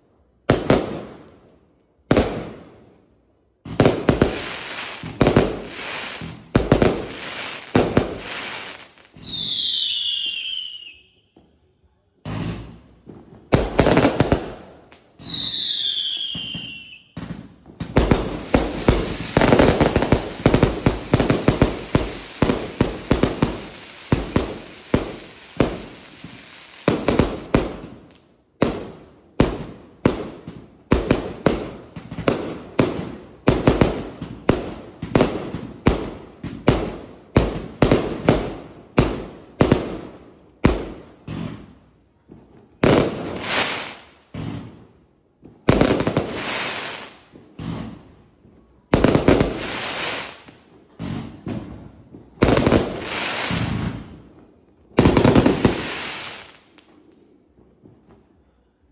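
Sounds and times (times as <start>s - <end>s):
fireworks crackling bursts: 3.7s - 10.9s, 12.3s - 41.9s, 42.8s - 44.8s, 45.6s - 48.2s, 49.0s - 51.6s, 52.2s - 57.1s
falling firework whistle: 9.1s - 11.5s, 15.2s - 17.3s
fireworks cake firing: 12.2s - 27.9s.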